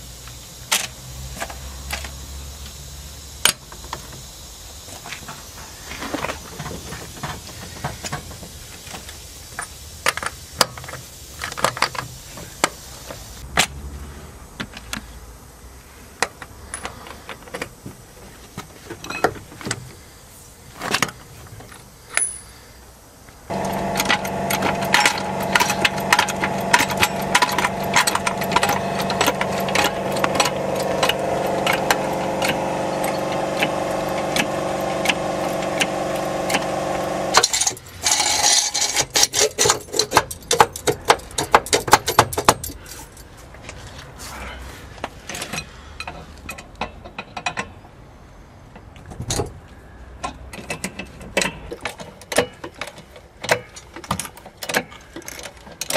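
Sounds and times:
droning hum: 23.5s - 37.5s.

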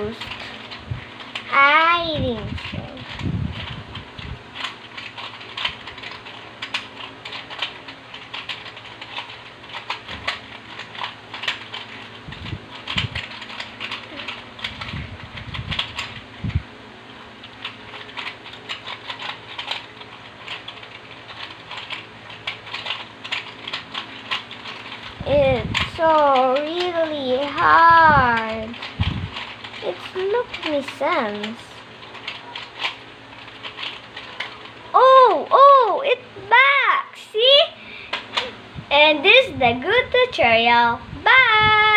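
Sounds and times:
puzzle cube clicking: 2.6s - 16.2s, 17.5s - 35.4s.

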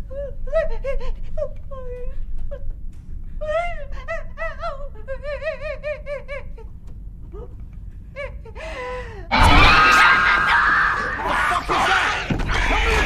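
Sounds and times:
woman crying and sobbing: 0.0s - 2.8s, 3.4s - 10.4s
loud crash: 9.3s - 11.3s
screaming: 9.3s - 13.0s.

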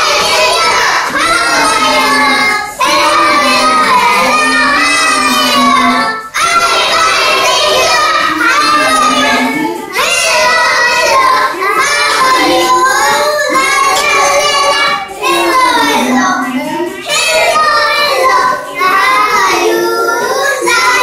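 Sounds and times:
children singing together: 0.0s - 21.0s.

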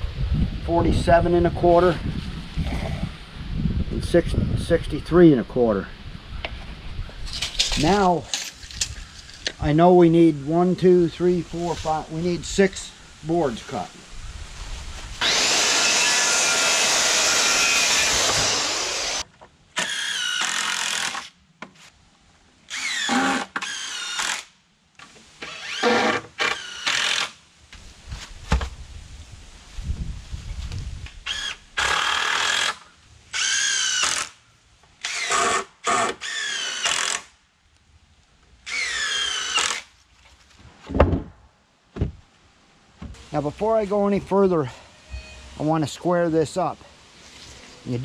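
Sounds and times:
power saw cutting: 15.2s - 19.2s
power drill driving screws: 15.2s - 21.3s, 22.7s - 24.5s, 25.4s - 27.4s, 31.2s - 34.4s, 35.0s - 37.3s, 38.6s - 39.9s.

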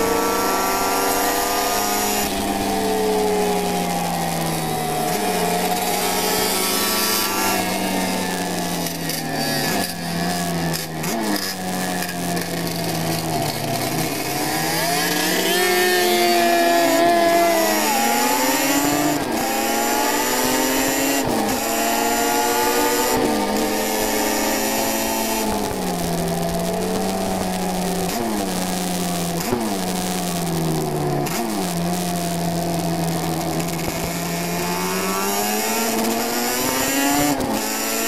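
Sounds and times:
racing motorcycle engine running hard: 0.0s - 38.0s
recording crackle: 24.8s - 37.6s.

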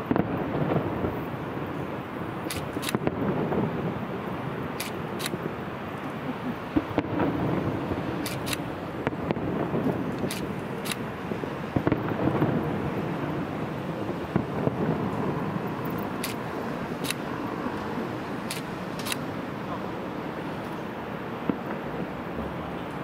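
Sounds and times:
city traffic rumble: 0.0s - 23.0s
distant fireworks booming: 0.0s - 23.0s.

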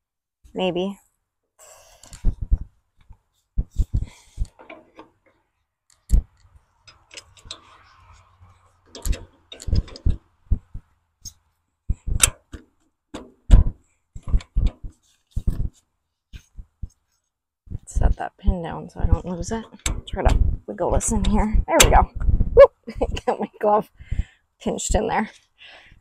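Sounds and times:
metal clanks and knocks: 8.8s - 10.2s.

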